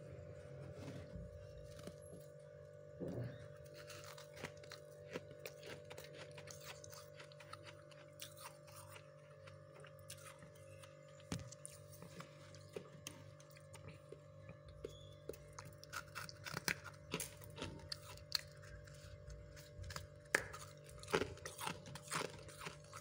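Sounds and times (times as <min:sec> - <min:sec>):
steady hum: 0:00.0 - 0:23.0
frost crunching: 0:03.7 - 0:14.6, 0:15.4 - 0:23.0.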